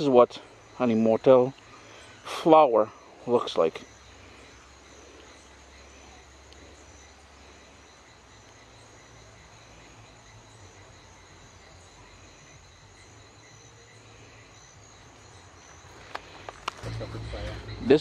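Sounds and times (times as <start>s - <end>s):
insects chirring: 0.0s - 18.0s.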